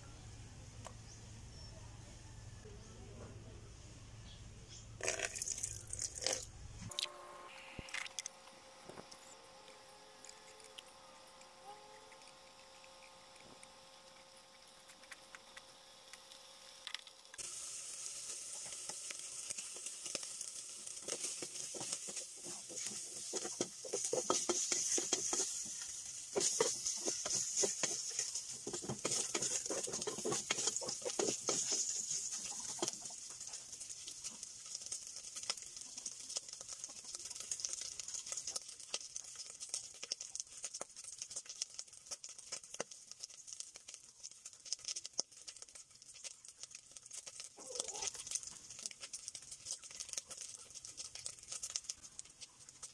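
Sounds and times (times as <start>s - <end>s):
meat sizzling in a pot: 5.0s - 52.9s
wooden spatula scraping pot: 21.0s - 33.0s.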